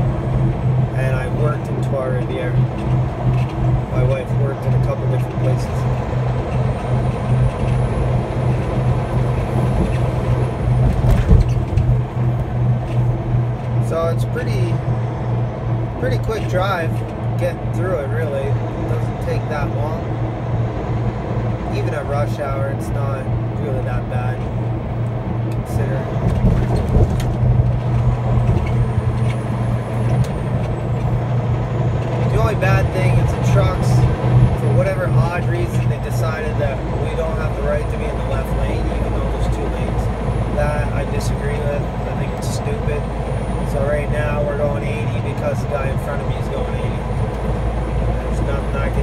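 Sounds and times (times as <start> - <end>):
engine drone: 0.0 - 49.0
pulsing low hum: 0.0 - 49.0
truck road noise: 0.0 - 49.0
low thumps: 4.7 - 13.9, 23.2 - 36.2.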